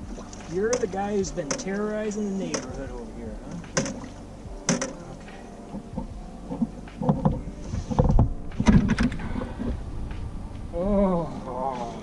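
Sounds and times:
heavy thumps and splashing: 0.0 - 10.7
sharp knocks: 0.7 - 1.8, 3.5 - 5.0.

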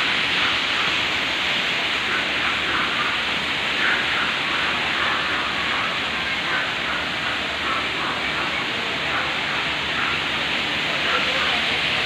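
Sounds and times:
waterfall splashing: 0.0 - 12.0.

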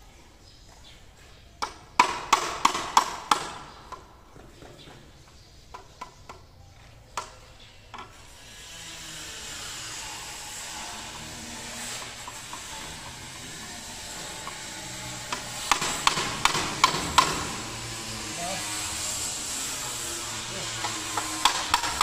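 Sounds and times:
hammer tapping concrete: 1.6 - 3.6, 15.3 - 17.5, 20.8 - 22.0
steady hiss: 8.2 - 22.0.

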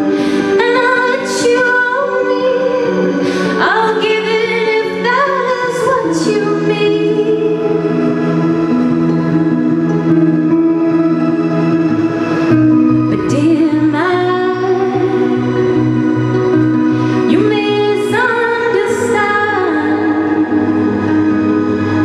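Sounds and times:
woman singing: 0.0 - 8.2, 13.1 - 22.0.

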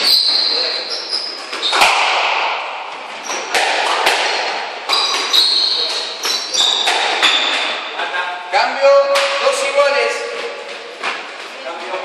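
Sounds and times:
shoes squeaking on wooden floor: 0.0 - 1.9, 3.0 - 3.6, 4.3 - 7.8
squash ball cracking off rackets: 1.5 - 2.8, 3.4 - 7.8.

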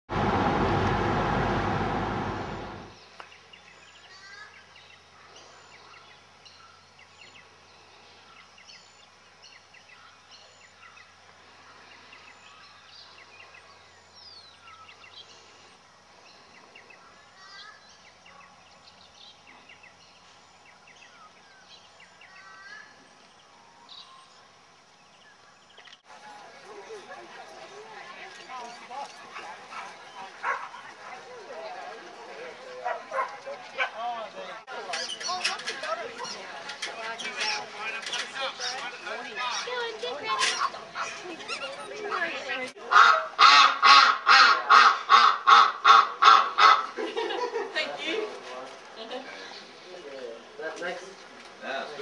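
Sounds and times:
car road and engine noise: 0.1 - 3.0.

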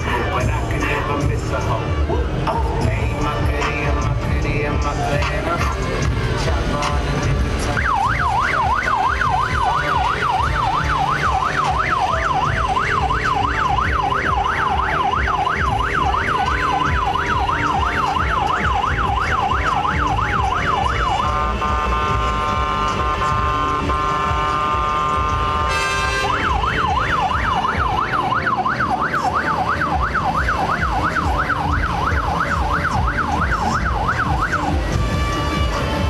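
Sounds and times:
electronic siren yelping: 7.6 - 22.2, 25.6 - 35.8.

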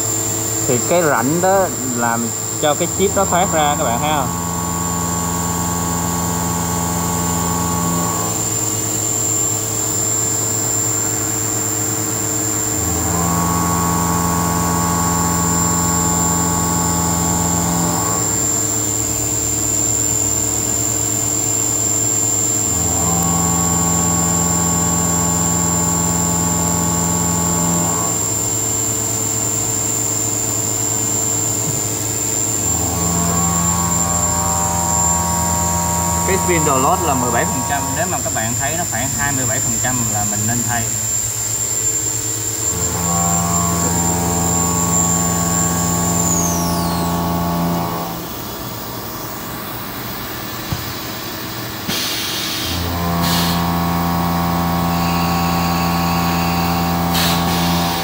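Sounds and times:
machine hum: 0.0 - 50.6, 52.8 - 58.0
constant high whine: 0.0 - 51.9, 52.5 - 58.0
pitched metal cutting tone: 0.5 - 8.7, 31.2 - 48.3, 52.8 - 58.0.

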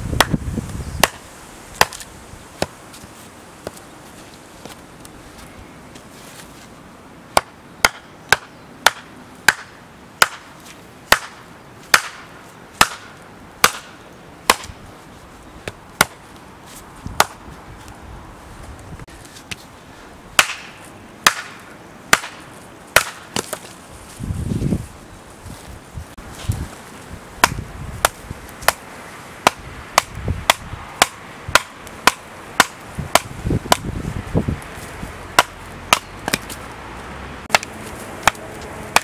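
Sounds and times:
blade chopping wood: 1.0 - 1.2, 1.8 - 2.8, 7.3 - 10.5, 11.1 - 14.8, 17.2 - 17.4, 20.4 - 22.4, 23.0 - 23.8, 27.4 - 33.9, 35.4 - 36.6, 37.5 - 39.0.

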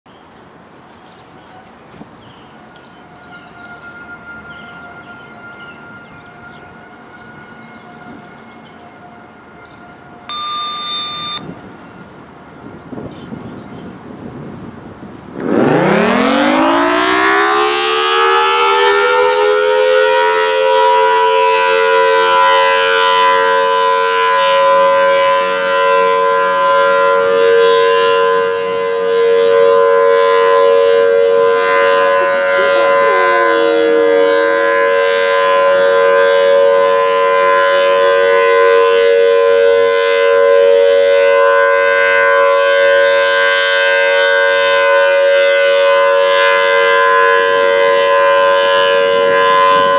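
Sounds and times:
warning siren two-note chord: 9.6 - 11.5, 15.4 - 49.9.

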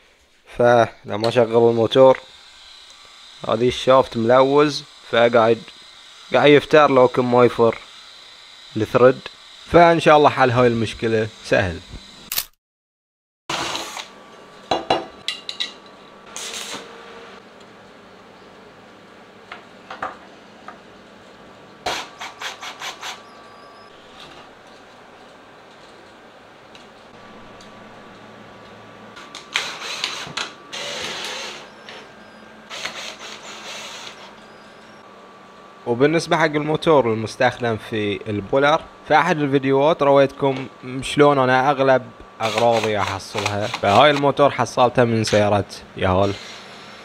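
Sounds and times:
power drill driving screws: 13.5 - 14.1, 29.3 - 32.0, 32.7 - 34.4, 42.4 - 44.2, 46.2 - 47.0.

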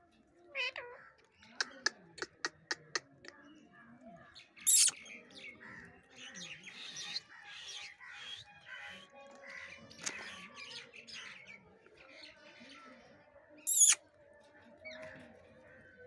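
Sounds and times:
beak pecking on concrete: 1.6 - 3.4, 4.7 - 5.0, 13.7 - 14.0
parakeet squeaky call: 4.7 - 5.0, 13.7 - 14.0
soft scratchy chattering: 4.7 - 5.0, 13.7 - 14.0.

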